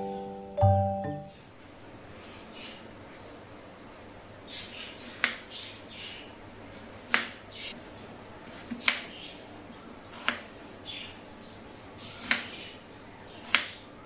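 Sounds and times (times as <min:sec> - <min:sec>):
knife slicing potato: 0:10.1 - 0:10.5, 0:12.1 - 0:12.5.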